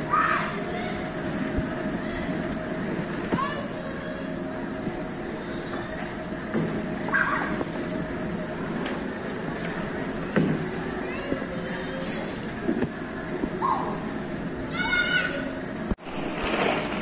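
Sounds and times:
indoor play area din: 0.0s - 17.0s
children's high cries: 14.7s - 15.5s.

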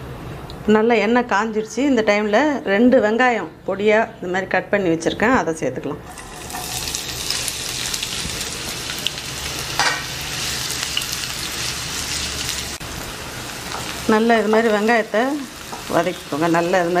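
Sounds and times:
onions sizzling in oil: 6.1s - 17.0s.

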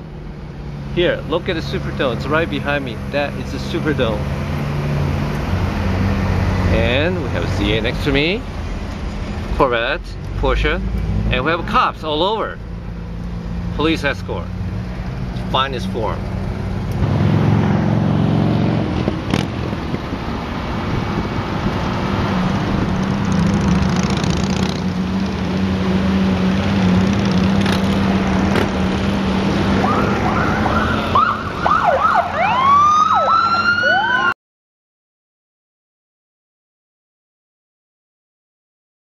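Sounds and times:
car engine and road noise: 0.0s - 34.4s
police sirens wailing: 29.3s - 34.4s.

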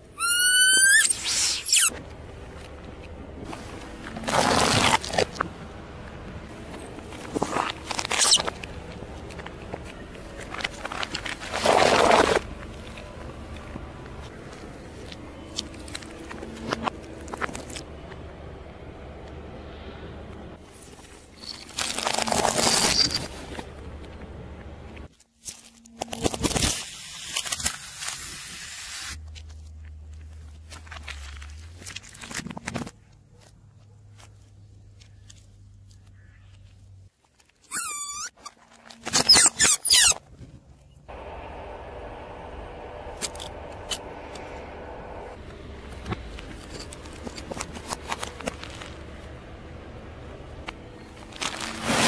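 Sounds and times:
tyre crunching plastic: 7.0s - 13.1s, 21.4s - 23.6s, 25.1s - 33.5s, 46.1s - 49.3s, 51.1s - 52.0s.

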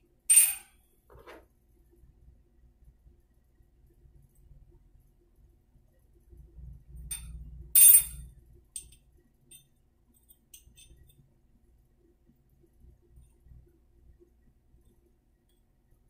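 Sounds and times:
sharp metal clink: 0.3s - 0.7s.

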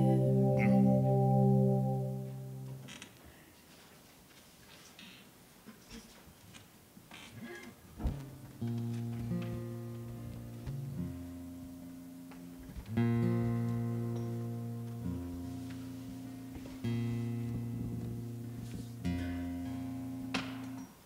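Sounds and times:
acoustic guitar strumming chords: 0.0s - 2.8s, 8.6s - 20.8s.

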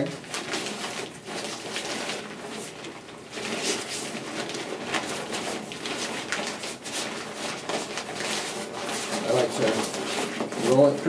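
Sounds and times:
fabric rustling and crinkling: 0.0s - 11.0s.

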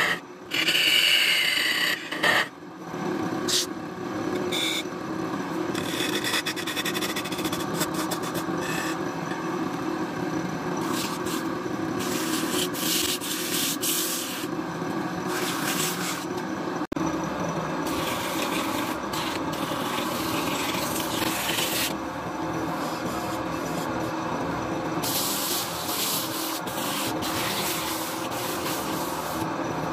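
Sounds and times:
lathe running hum: 0.0s - 29.9s
sandpaper rasping on wood: 10.8s - 14.5s, 15.3s - 16.3s, 25.0s - 29.4s.

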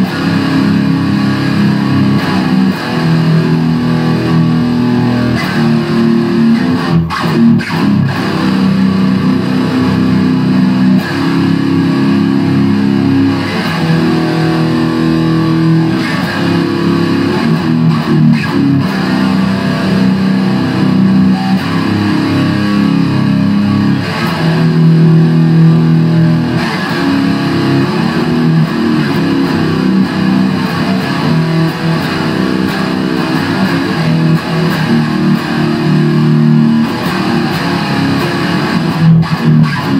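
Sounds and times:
heavy metal electric guitar: 0.0s - 39.9s.

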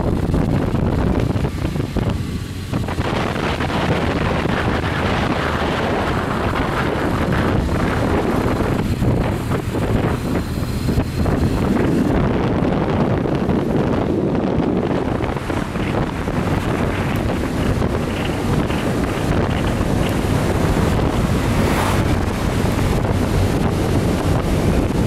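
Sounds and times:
motorcycle engine running: 0.0s - 25.0s
wind buffeting microphone: 0.0s - 25.0s.

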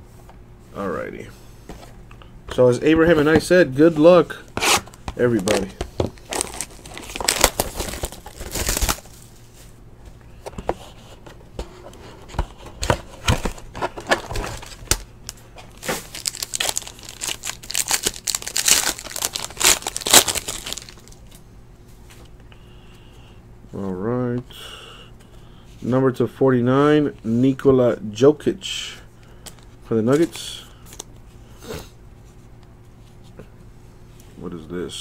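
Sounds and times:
plastic wrapper crinkling and tearing: 5.4s - 9.2s, 14.1s - 21.4s.

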